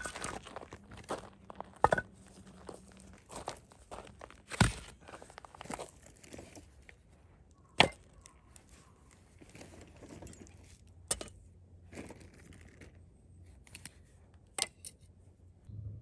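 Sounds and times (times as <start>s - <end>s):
camping gear rustling: 8.4s - 10.9s.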